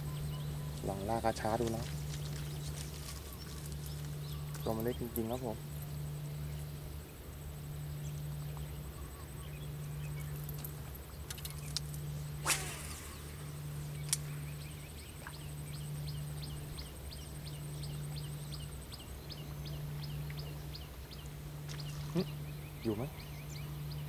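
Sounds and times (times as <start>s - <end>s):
bird chirping: 0.0s - 24.0s
steady low hum: 0.0s - 24.0s
light click: 14.0s - 14.3s.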